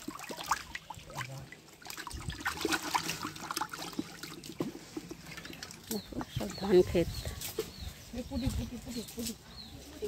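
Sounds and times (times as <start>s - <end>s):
fish splashing in bucket: 0.0s - 6.4s
water dripping: 0.0s - 7.0s.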